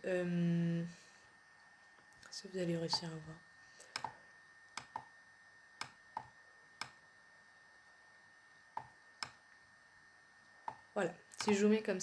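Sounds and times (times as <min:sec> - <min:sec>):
faint steady hum: 0:00.0 - 0:12.0
computer mouse clicking: 0:03.9 - 0:04.2, 0:04.8 - 0:05.1, 0:05.8 - 0:07.0, 0:10.7 - 0:11.6.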